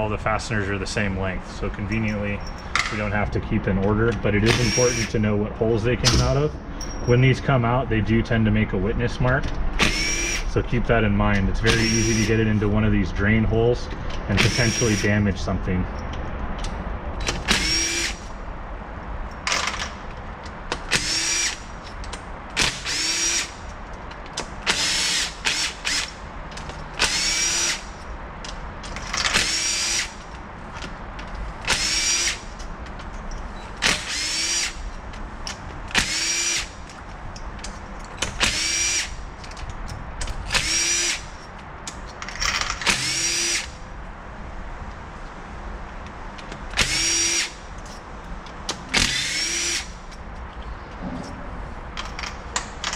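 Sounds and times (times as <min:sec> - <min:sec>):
cordless drill whining: 0:04.6 - 0:05.1, 0:09.8 - 0:10.4, 0:11.8 - 0:12.3, 0:17.5 - 0:18.2, 0:22.8 - 0:23.5, 0:27.0 - 0:27.9, 0:33.9 - 0:34.8, 0:36.0 - 0:36.7, 0:38.4 - 0:39.1, 0:40.6 - 0:41.2, 0:42.9 - 0:43.7, 0:46.8 - 0:47.6, 0:49.0 - 0:50.0.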